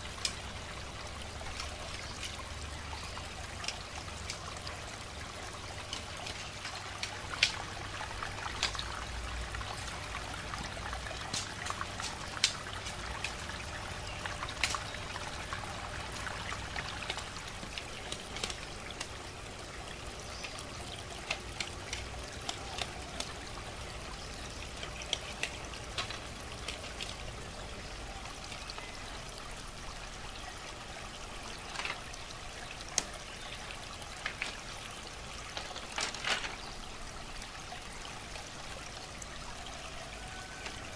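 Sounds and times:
trickle of running water: 0.0s - 40.9s
bamboo strips clicking: 5.8s - 19.3s, 20.2s - 24.0s, 24.7s - 27.2s, 35.5s - 36.6s.

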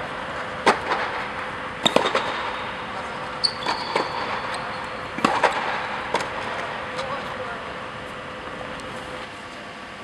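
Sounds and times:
short high squeak: 3.4s - 5.0s.

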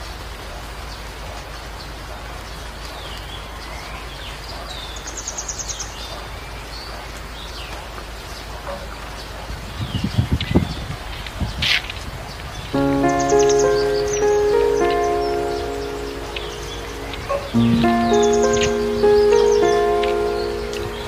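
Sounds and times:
small birds chirping: 12.3s - 21.0s
outdoor hiss: 12.8s - 21.0s.

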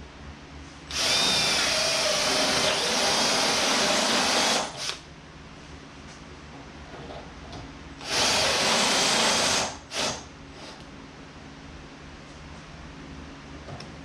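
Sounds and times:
drill grinding through metal tube: 0.9s - 5.0s, 8.0s - 10.8s.

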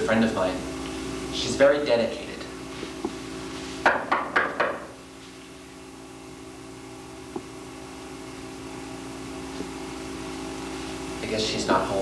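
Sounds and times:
low hum and hiss: 0.0s - 12.0s
knocking on a door: 3.9s - 4.9s.

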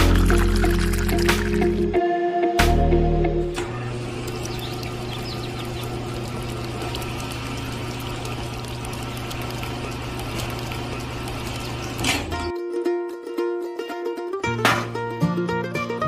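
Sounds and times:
small electric motor humming and ticking: 3.8s - 12.5s.

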